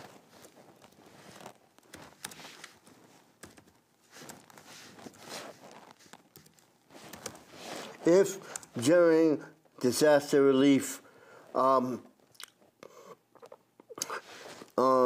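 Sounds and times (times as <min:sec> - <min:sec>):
soft rustling: 0:00.0 - 0:10.1, 0:14.1 - 0:15.0.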